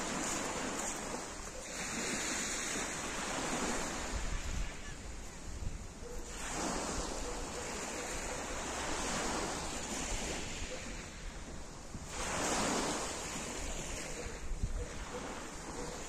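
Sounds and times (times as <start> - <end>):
waves washing up pebble beach: 0.0 - 4.6, 12.1 - 13.9.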